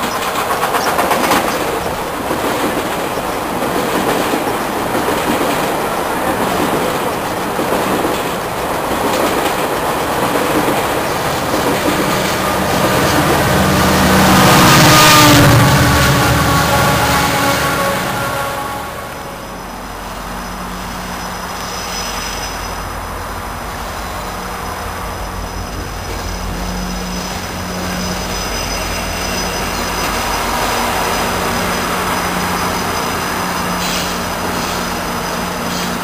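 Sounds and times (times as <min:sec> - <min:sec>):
diesel locomotive engine hum: 0:00.0 - 0:36.0
train rumble: 0:00.0 - 0:36.0.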